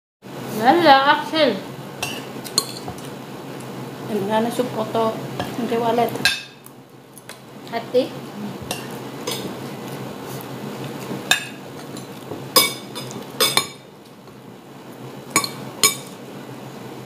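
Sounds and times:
cutlery clinking on ceramic plates: 8.7s - 9.6s, 11.3s - 13.8s, 15.4s - 16.2s.

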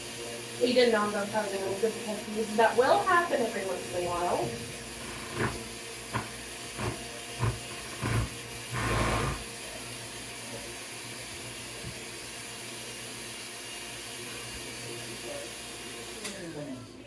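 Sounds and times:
stand mixer running: 0.0s - 17.0s
rasp of bowl and beaters: 4.9s - 9.5s.

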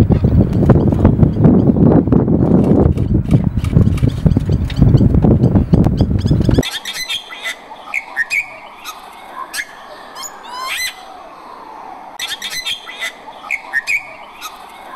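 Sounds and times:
bird chirps and whistles: 6.0s - 9.0s, 12.2s - 14.6s.

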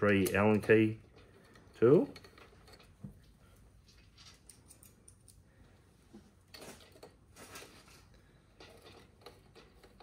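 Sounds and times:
small metal clicks: 3.9s - 5.5s.

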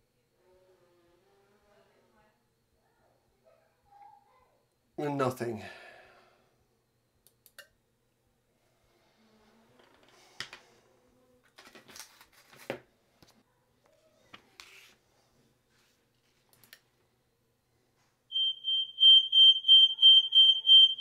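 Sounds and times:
pulsing smoke alarm tone: 18.3s - 21.0s.

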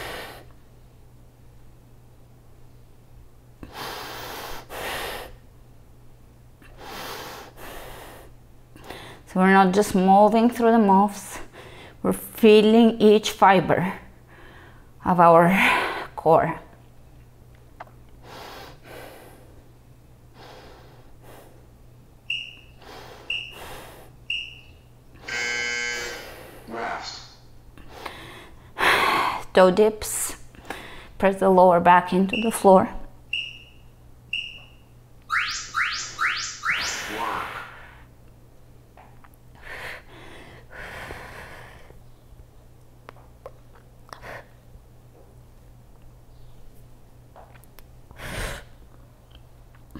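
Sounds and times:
woman breathing hard: 0.0s - 0.5s, 14.3s - 14.9s, 22.8s - 24.2s, 39.6s - 42.0s
steady low hum: 0.0s - 49.9s
timer short high beeps: 22.3s - 22.7s, 23.3s - 23.6s, 24.3s - 24.7s, 32.3s - 32.6s, 33.3s - 37.2s
person exhaling breathily: 37.1s - 38.1s.

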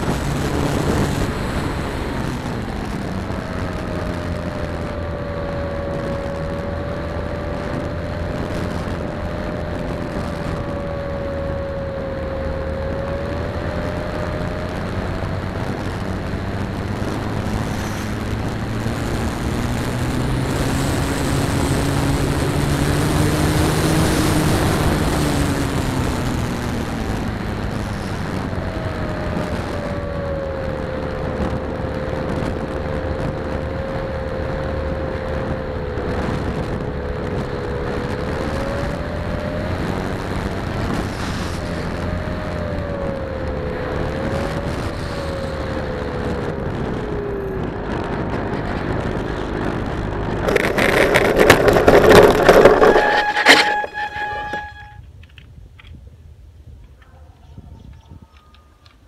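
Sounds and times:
rushing air: 0.0s - 4.4s
electric motor and propeller whine: 50.4s - 55.0s.

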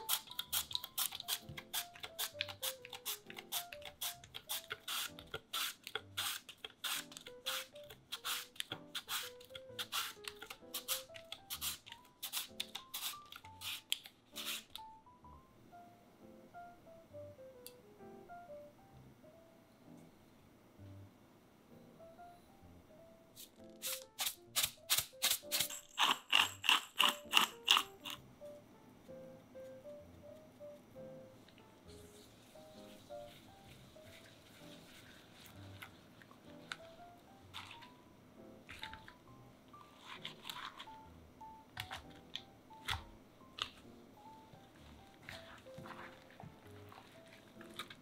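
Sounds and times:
pepper grinder ratcheting: 0.0s - 14.6s, 23.8s - 28.2s.

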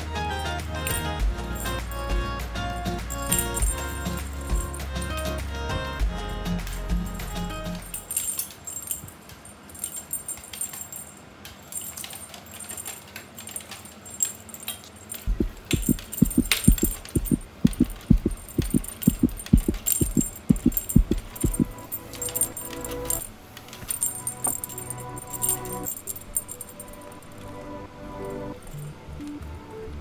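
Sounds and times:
cat toy clinking and jingling: 0.8s - 5.2s, 7.8s - 27.2s
soft low thumps: 15.3s - 21.8s.

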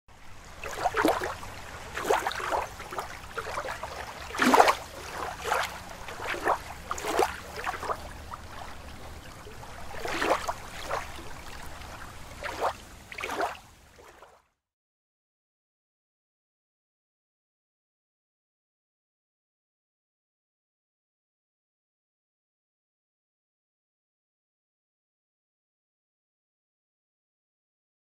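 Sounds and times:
water splashing and sloshing: 0.1s - 14.5s.

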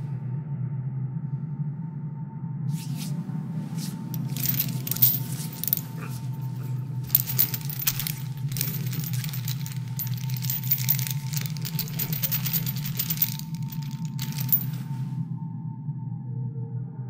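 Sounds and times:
metal chains clinking: 4.2s - 15.0s.

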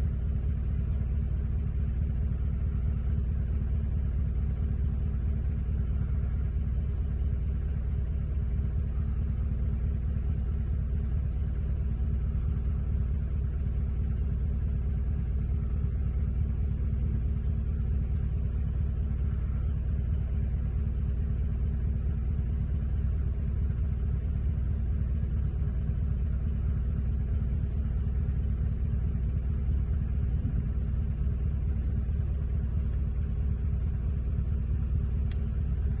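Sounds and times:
low rumble of storm: 28.6s - 36.0s
small tick: 35.2s - 36.0s.

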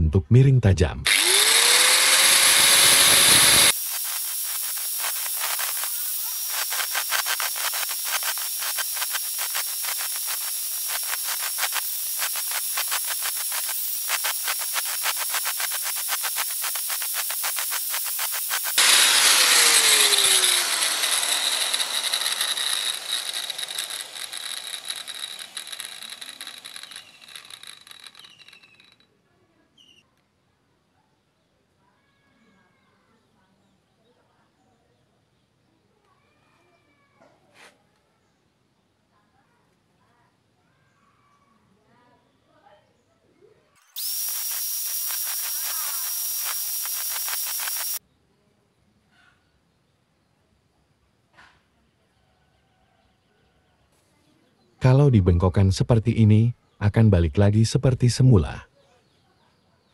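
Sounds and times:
angle grinder grinding metal: 1.0s - 29.0s, 43.9s - 48.0s.

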